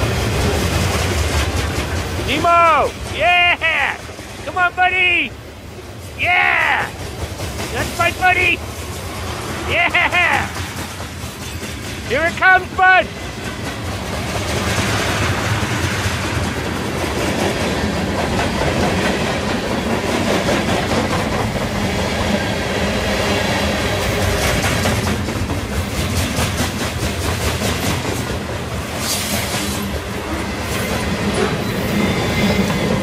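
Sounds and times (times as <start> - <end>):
freight train rumbling past: 0.0 - 33.0
wheels clattering over rails: 13.1 - 22.8, 24.0 - 33.0.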